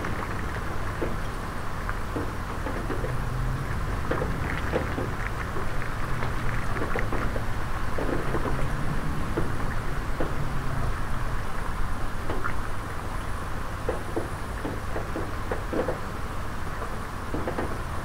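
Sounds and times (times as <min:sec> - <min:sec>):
low wind rumble: 0:00.0 - 0:13.8
rain falling into a puddle: 0:00.0 - 0:17.9
raindrops splashing: 0:00.0 - 0:18.0.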